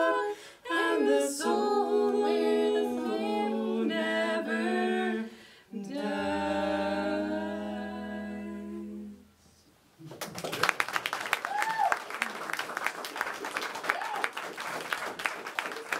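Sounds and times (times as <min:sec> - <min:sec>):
voices singing in harmony: 0:00.0 - 0:09.4
low steady note: 0:05.8 - 0:09.6.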